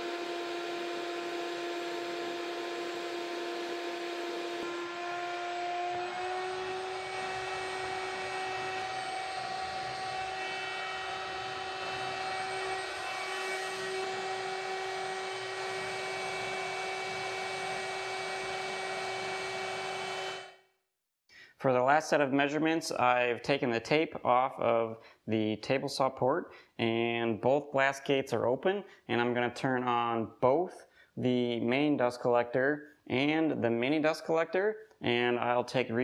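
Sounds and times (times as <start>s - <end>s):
shop vac motor whining: 0.0s - 20.6s.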